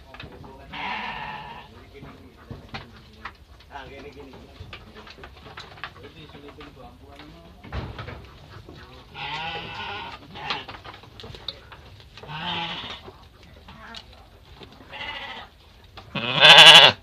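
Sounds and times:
sheep bleating: 0.7 - 1.7, 9.1 - 10.7, 12.3 - 13.0, 14.9 - 15.5, 16.1 - 17.0.

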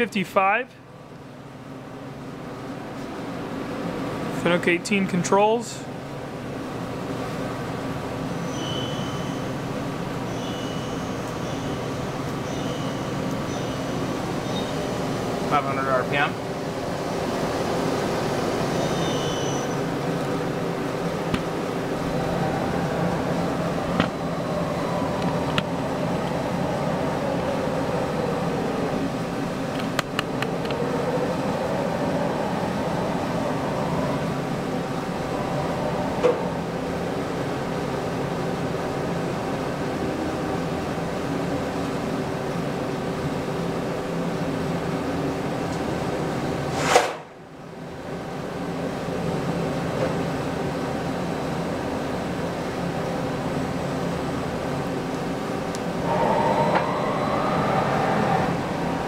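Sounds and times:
machine whine rising and falling: 7.8 - 40.0, 54.6 - 59.0
lathe machine hum: 9.2 - 46.7, 47.8 - 59.0.

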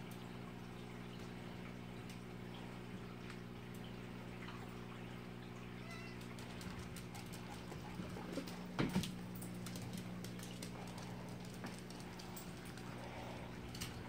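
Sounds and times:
steady low hum: 0.0 - 14.0
cat meowing: 5.8 - 6.3.

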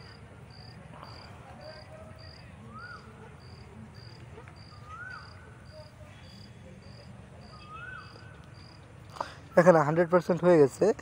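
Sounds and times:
insect chirping: 0.0 - 9.7
rising and falling whistled call: 2.6 - 3.1, 4.6 - 5.8, 7.4 - 8.3.

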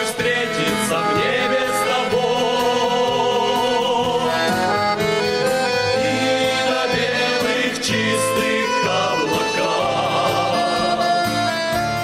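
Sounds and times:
men singing in harmony: 0.0 - 11.8
instrumental accompaniment: 0.0 - 12.0.

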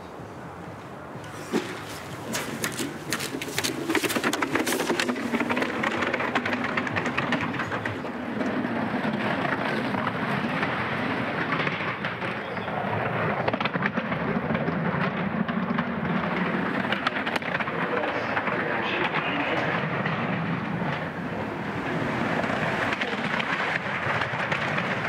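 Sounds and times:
sled runners scraping on ice: 1.2 - 9.8.

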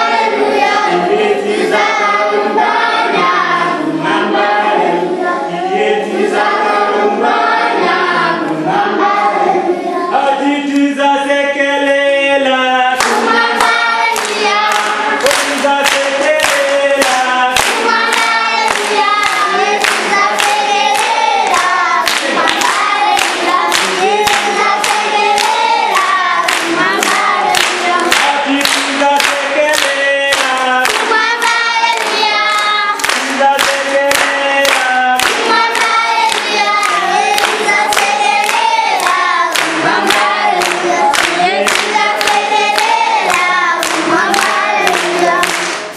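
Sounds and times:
children singing: 0.0 - 45.9
hand clapping: 13.0 - 45.9.

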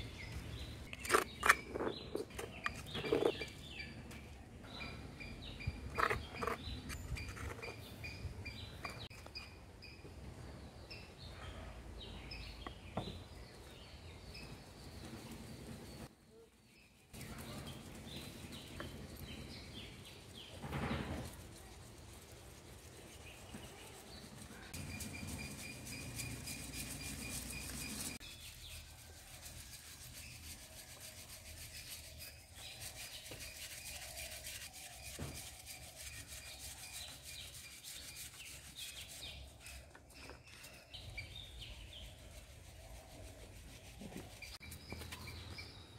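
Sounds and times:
birds chirping: 0.0 - 21.4, 22.8 - 29.0, 31.7 - 45.9
flour sifted through metal sieve: 20.2 - 39.8.

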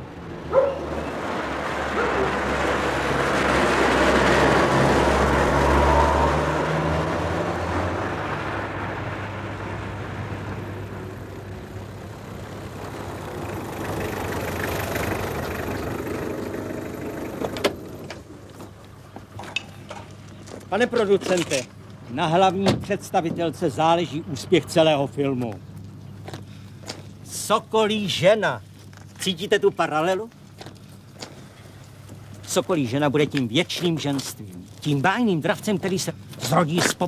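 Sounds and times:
car driving past: 0.3 - 18.2.

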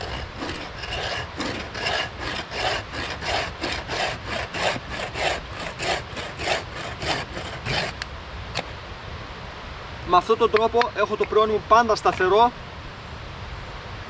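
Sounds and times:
bow saw cutting log: 0.0 - 8.8, 12.0 - 12.4.

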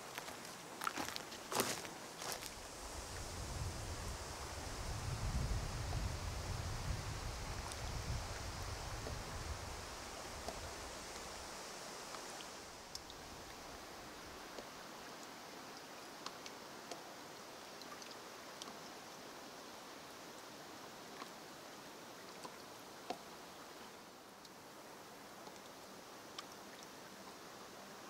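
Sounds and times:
wind rumble on microphone: 2.5 - 11.5.

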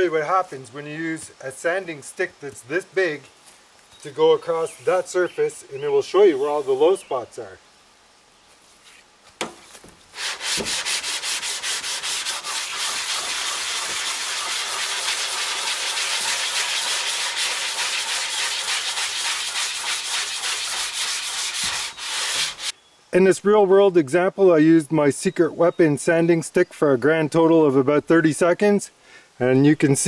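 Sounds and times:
sandpaper rubbing on panel: 10.1 - 22.7.

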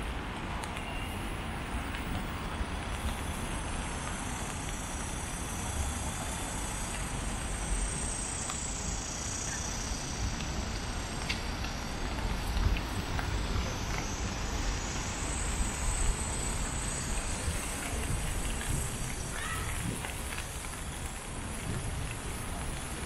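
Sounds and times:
traffic noise: 0.0 - 23.0
faint ticks: 2.8 - 5.3.

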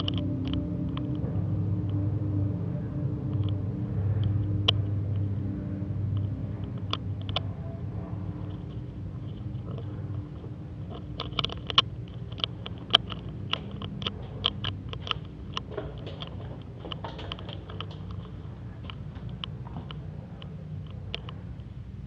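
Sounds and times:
steady low hum: 0.0 - 22.0
sharp clicks and taps: 10.9 - 20.0.

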